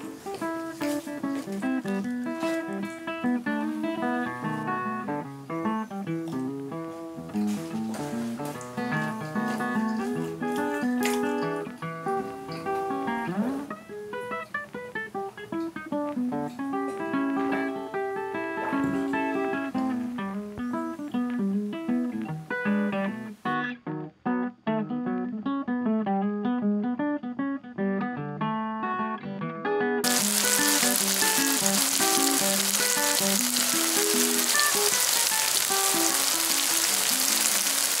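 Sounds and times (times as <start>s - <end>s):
plucked guitar music: 0.0s - 38.0s
tofu sizzling in oil: 30.0s - 38.0s.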